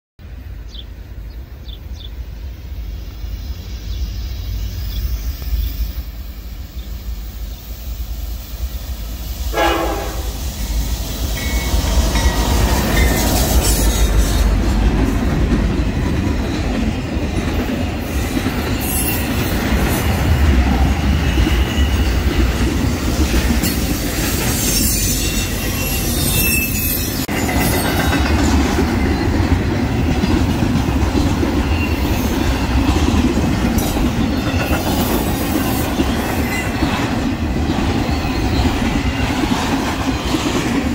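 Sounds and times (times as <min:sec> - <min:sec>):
train wheel clatter: 0:11.0 - 0:40.9.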